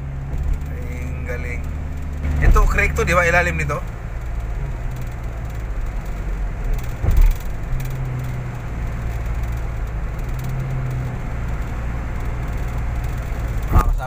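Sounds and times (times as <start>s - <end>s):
car engine and road rumble: 0.0s - 14.0s
brief thump: 7.0s - 7.5s.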